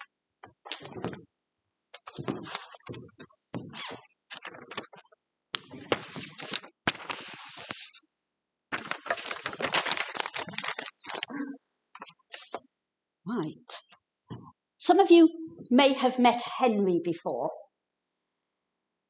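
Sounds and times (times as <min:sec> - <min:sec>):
papers rustling: 0:02.0 - 0:08.0, 0:08.7 - 0:11.4, 0:12.0 - 0:12.6.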